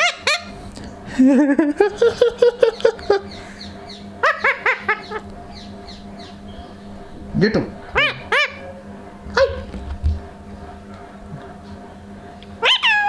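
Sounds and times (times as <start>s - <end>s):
parakeet chattering: 0.0s - 0.6s, 2.8s - 6.9s, 7.7s - 8.8s, 12.6s - 13.0s
parakeet sharp calls: 0.0s - 0.6s, 3.2s - 6.8s, 7.8s - 8.8s, 12.6s - 13.0s.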